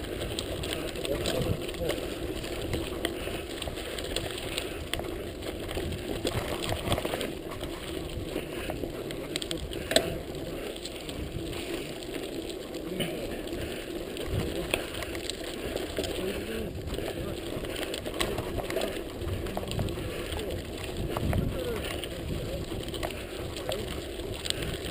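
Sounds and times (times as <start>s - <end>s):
bike clicks and knocks: 0.0s - 16.2s
bike tyres on gravel: 0.0s - 24.9s.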